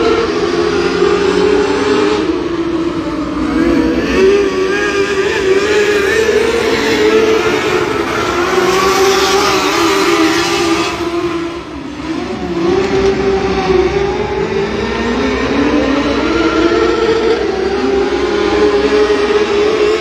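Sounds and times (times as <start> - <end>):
race car engines revving: 0.0 - 20.0.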